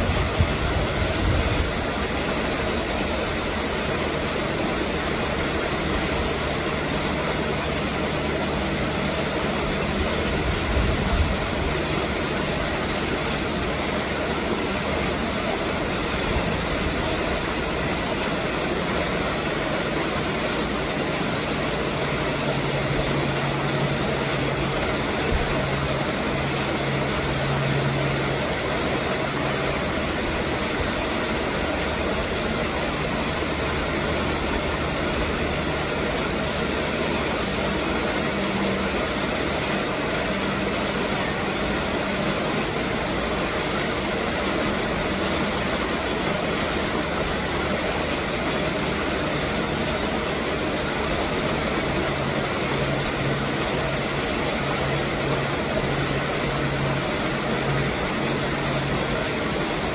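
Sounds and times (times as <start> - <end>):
engine-like machine hum: 0.0 - 59.9.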